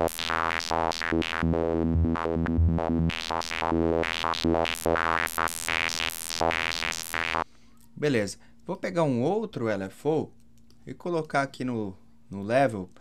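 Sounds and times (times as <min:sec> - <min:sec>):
filtered synthesizer sequence: 0:00.0 - 0:07.4.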